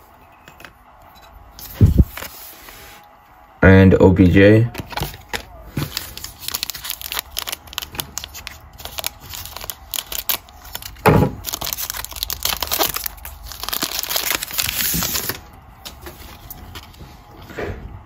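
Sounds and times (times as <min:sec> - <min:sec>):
foil wrapper crinkling: 0:04.9 - 0:16.9.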